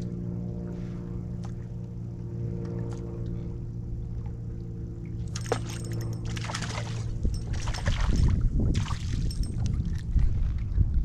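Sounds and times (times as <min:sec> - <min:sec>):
trolling motor humming: 0:00.0 - 0:10.4
water splashing: 0:05.3 - 0:09.4.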